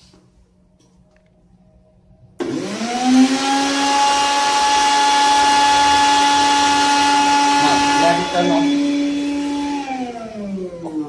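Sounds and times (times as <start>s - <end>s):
mixer grinder motor whining: 2.4s - 11.0s.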